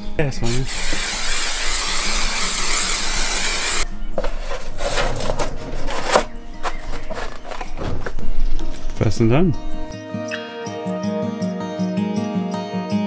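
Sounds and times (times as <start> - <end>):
aerosol spray hissing: 0.4 - 3.8
board knocking and rubbing: 4.2 - 8.2.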